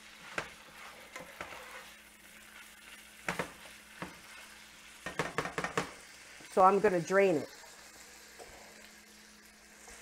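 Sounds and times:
spatula scraping a pan: 0.0 - 6.1
meat sizzling in a skillet: 0.0 - 10.0
spatula knocking on a pan: 3.2 - 4.2, 5.0 - 6.0.

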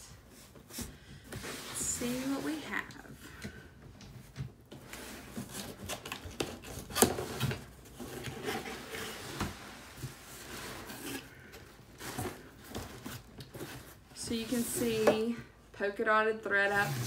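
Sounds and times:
cardboard and paper rustling: 4.3 - 15.3.

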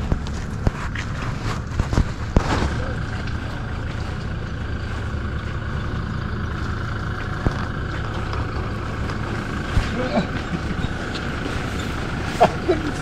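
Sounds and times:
car engine idling: 0.0 - 13.0.

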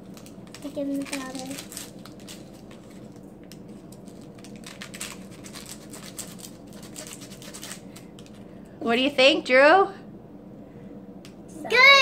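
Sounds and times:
paper rustling: 0.1 - 8.1.

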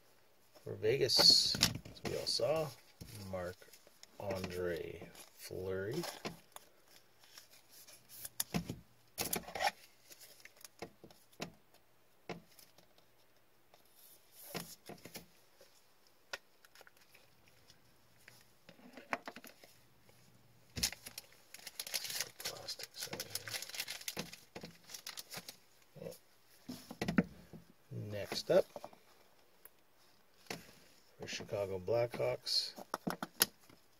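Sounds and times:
plastic sleeve rustling: 0.5 - 10.9, 16.4 - 27.0.

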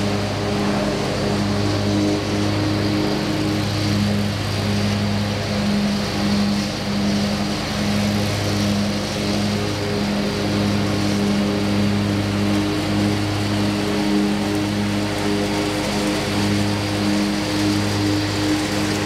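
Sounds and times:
lawn mower engine running: 0.0 - 19.0.

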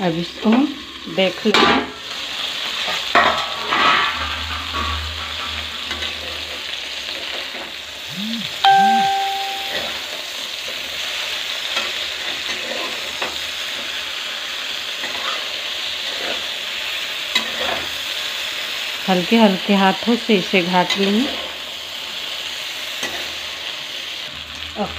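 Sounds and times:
okra sizzling in oil: 0.0 - 8.1, 9.0 - 24.9
metallic ding: 8.3 - 9.9.

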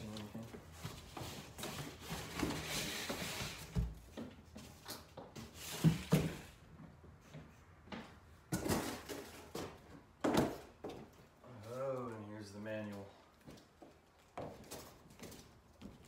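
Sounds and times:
cardboard rustling and scraping: 0.0 - 6.6.

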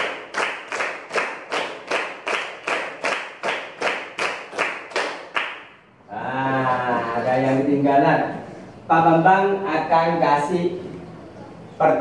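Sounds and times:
children clapping in unison: 0.0 - 5.8.

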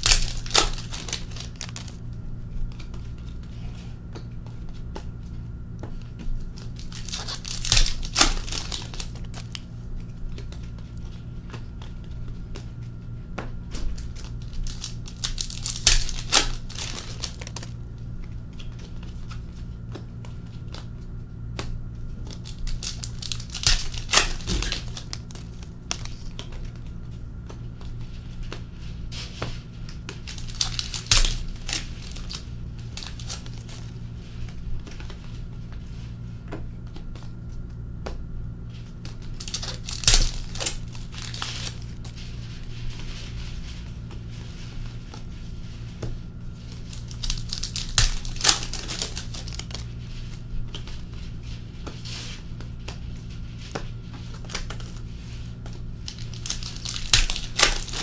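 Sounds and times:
card pack wrappers tearing and crinkling: 0.0 - 3.9, 6.4 - 12.2, 13.8 - 17.8, 22.2 - 27.5, 29.2 - 35.5, 38.8 - 43.8, 46.6 - 58.0
cards being shuffled: 0.0 - 58.0
steady low hum: 0.0 - 58.0.

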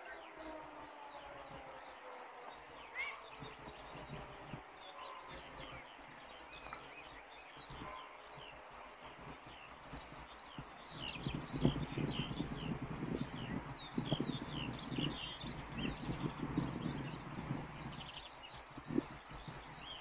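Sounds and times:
distant siren winding down: 0.0 - 3.7
birds chirping: 0.0 - 20.0.

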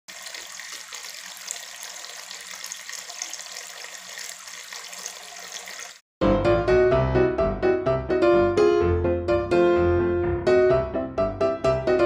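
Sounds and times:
fountain water trickling and splashing: 0.1 - 6.0.

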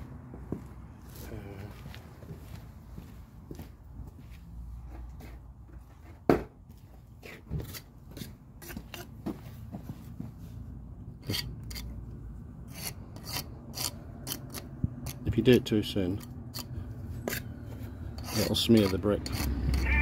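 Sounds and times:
iron scraping mortar from bricks: 12.7 - 15.2, 18.1 - 20.0.

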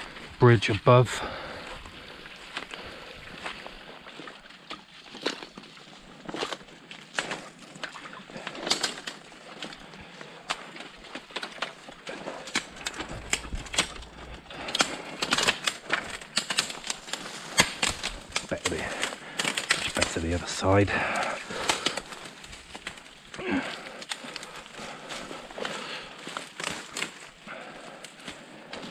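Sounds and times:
footsteps crackling through leaves: 15.5 - 20.5, 21.4 - 27.4.

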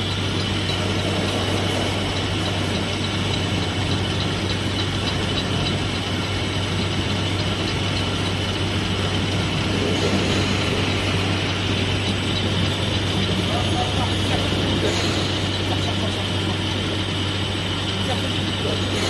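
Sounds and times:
constant low hum: 0.0 - 19.0
faint regular ticking: 0.0 - 19.0
milling machine cutting steel: 0.0 - 19.0.

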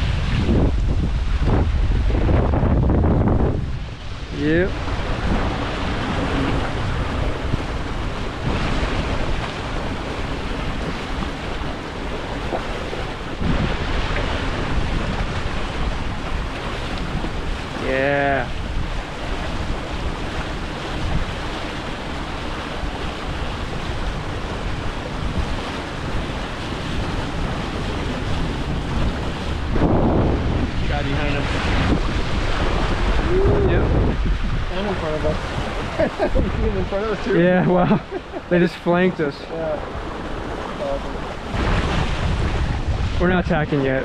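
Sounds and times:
water rushing past hulls: 0.0 - 44.0
wind buffeting microphone: 0.0 - 44.0.

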